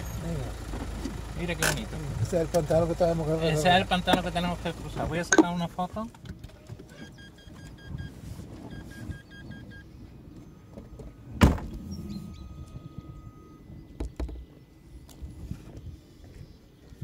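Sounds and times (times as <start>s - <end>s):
low car rumble: 0.0s - 17.0s
car warning chime beeping: 6.9s - 15.4s
loud thunk: 11.4s - 11.8s.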